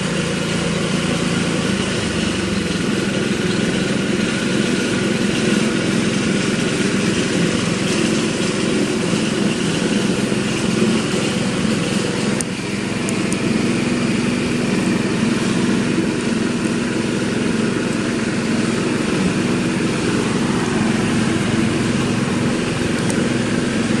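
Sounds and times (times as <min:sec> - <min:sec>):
engine droning: 0:00.0 - 0:24.0.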